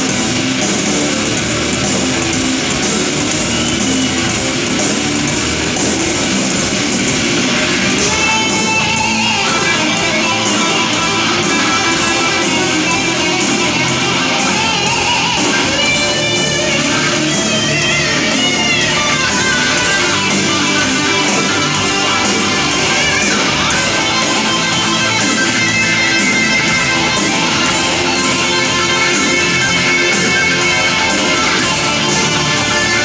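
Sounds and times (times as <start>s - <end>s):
live metal band playing: 0.0s - 33.0s.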